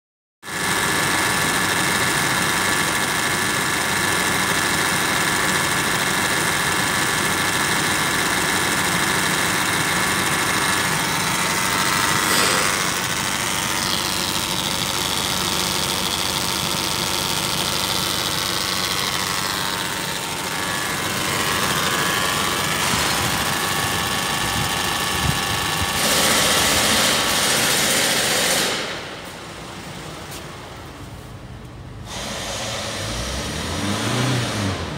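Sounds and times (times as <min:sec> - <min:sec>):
diesel engine idling: 0:00.5 - 0:34.9.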